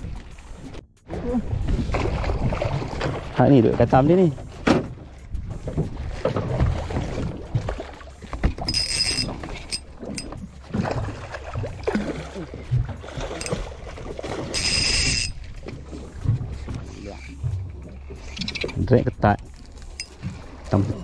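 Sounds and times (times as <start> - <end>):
fishing reel drag buzzing: 8.6 - 9.9, 14.5 - 15.5.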